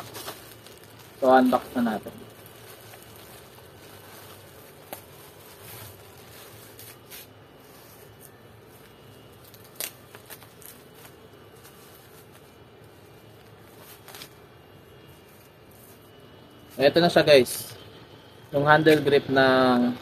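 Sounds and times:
plastic bag crinkling: 0.0 - 14.4.

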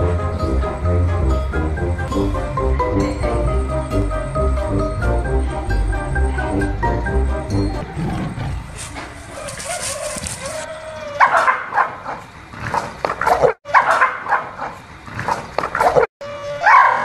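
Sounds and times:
dog barking and snarling: 7.8 - 17.0.

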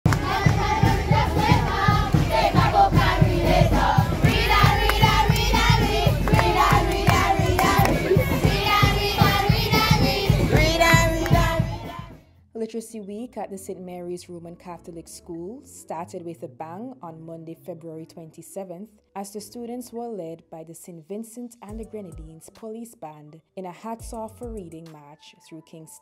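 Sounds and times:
steady beat: 0.0 - 12.1
children singing and chanting: 0.1 - 12.2.

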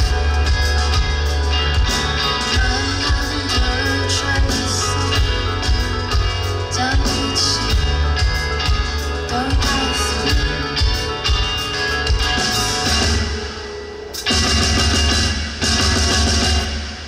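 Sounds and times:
rock band playing: 0.0 - 17.0
drum kit hits: 14.3 - 17.0.

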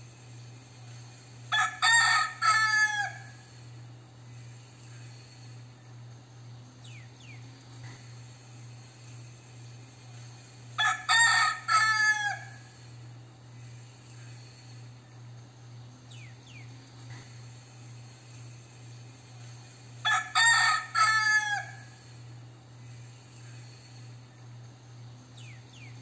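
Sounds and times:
rooster crowing: 1.5 - 3.6, 10.8 - 12.9, 20.0 - 22.1.

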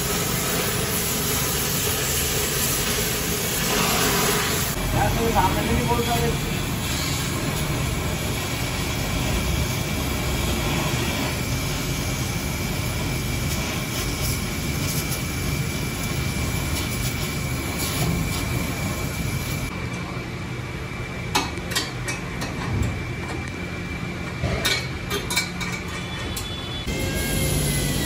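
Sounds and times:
rushing mechanical noise: 0.0 - 19.8, 26.0 - 28.0.

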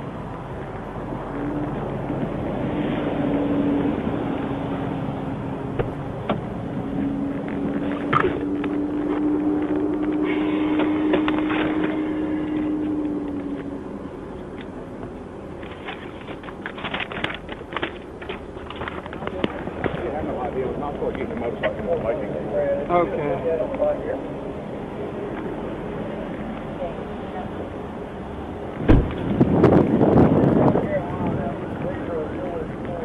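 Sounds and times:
truck passing on highway: 0.0 - 14.9.

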